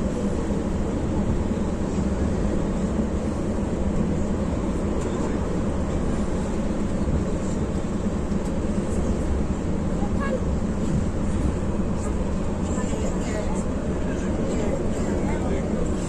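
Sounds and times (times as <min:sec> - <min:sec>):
bus engine and road noise: 0:00.0 - 0:16.0.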